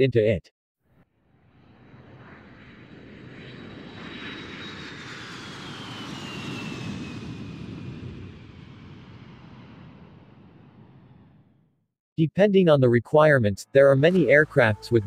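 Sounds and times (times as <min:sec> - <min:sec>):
jet airliner flying past: 0:01.2 - 0:11.6.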